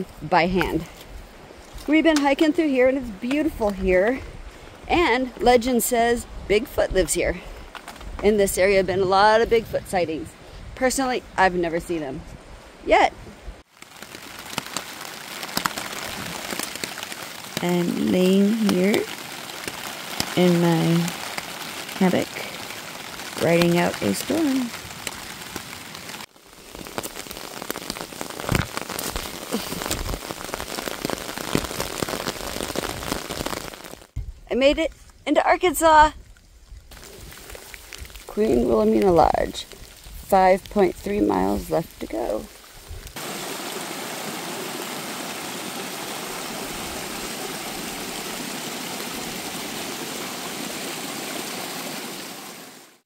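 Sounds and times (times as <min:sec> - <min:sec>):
rain pattering on fabric canopy: 0:12.9 - 0:34.2, 0:36.8 - 0:53.0
stream splashing over rocks: 0:13.6 - 0:34.1, 0:36.9 - 0:53.0.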